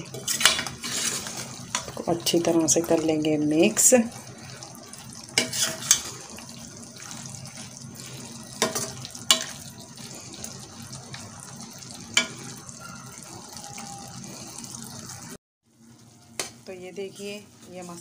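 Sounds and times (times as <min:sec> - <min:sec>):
metal spoon scraping pan: 0:00.0 - 0:01.9, 0:05.4 - 0:06.2
vegetables sizzling in oil: 0:00.0 - 0:18.0.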